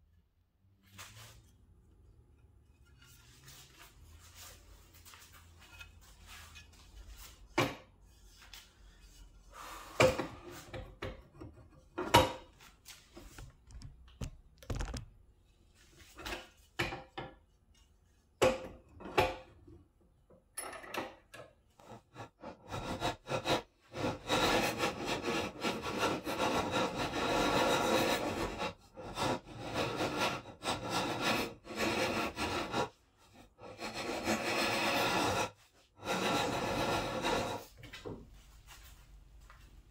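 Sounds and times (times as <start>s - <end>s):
hand file scraping wood: 2.4s - 13.9s, 21.8s - 38.0s
wooden knocks and clunks: 13.2s - 15.2s.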